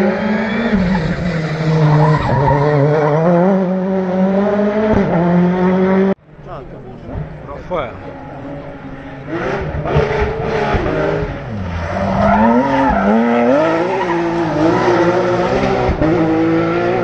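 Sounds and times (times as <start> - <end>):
rally car engine: 0.0 - 17.0.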